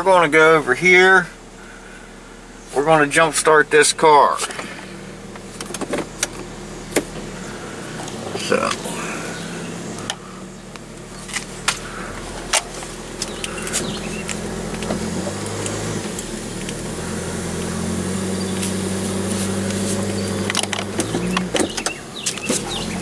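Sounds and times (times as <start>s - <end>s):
vehicle engine humming: 0.0s - 23.0s
sharp clicks and knocks: 20.2s - 22.8s.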